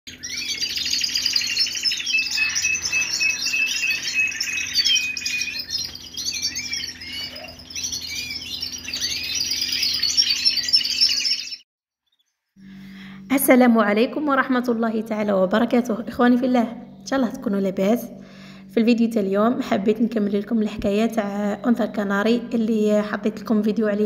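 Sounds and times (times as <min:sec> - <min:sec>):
songbirds chirping: 0:00.1 - 0:24.0
faint low hum: 0:12.6 - 0:24.0.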